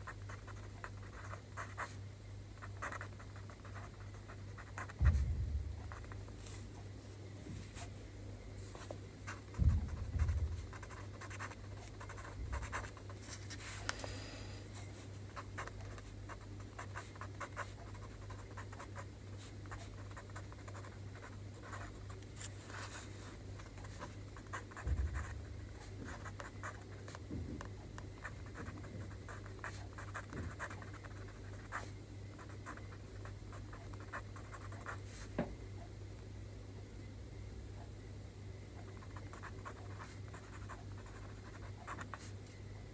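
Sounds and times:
pen scratching on paper: 0.0s - 1.9s, 2.6s - 5.2s, 9.3s - 13.6s, 15.4s - 23.0s, 23.7s - 26.9s, 28.2s - 31.8s, 33.7s - 35.0s, 38.9s - 42.4s
steady low hum: 0.0s - 42.9s
soft low thumps: 4.7s - 6.8s, 9.2s - 11.0s, 24.7s - 26.2s.

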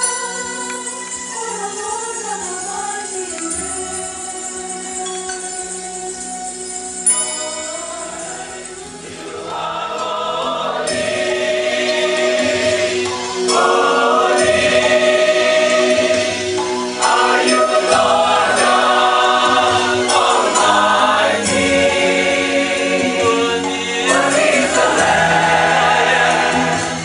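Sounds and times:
church choir singing: 7.1s - 27.0s.

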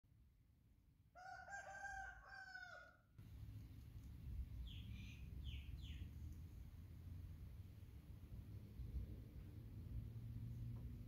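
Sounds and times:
rooster crowing: 1.1s - 3.1s.

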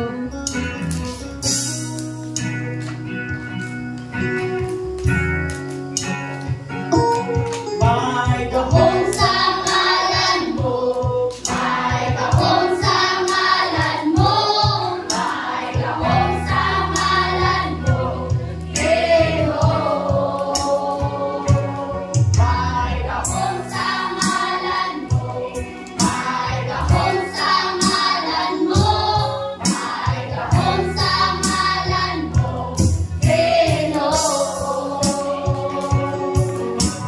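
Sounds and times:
guitar chords: 0.0s - 37.0s
group singing worship song: 7.8s - 37.0s.

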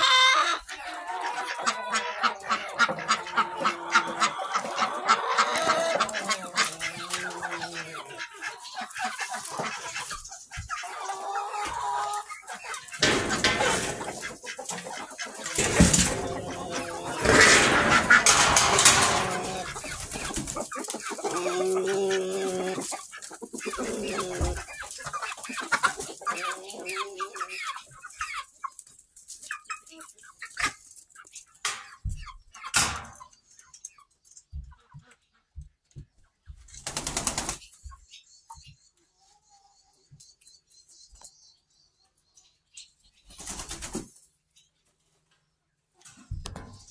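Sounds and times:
chickens clucking: 0.0s - 46.9s
steady rustling: 12.8s - 21.3s.

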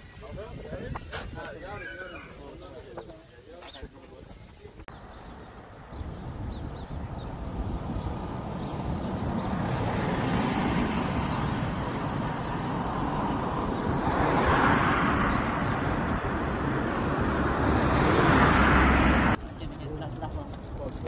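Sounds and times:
vehicles passing on road: 4.9s - 21.0s.

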